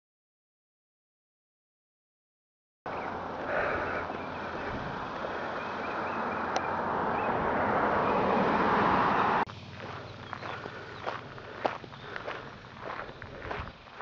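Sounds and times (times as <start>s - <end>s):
footsteps on dirt path: 2.9s - 6.2s, 9.5s - 14.0s
steady rushing outdoor noise: 2.9s - 14.0s.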